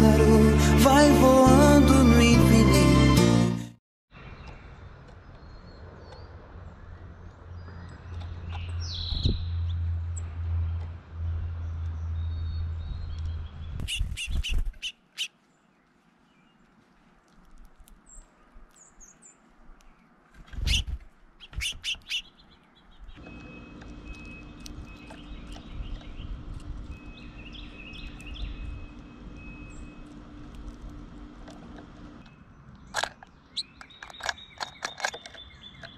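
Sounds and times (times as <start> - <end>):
songbirds chirping: 4.1 - 35.9
low steady rumble: 23.1 - 32.3.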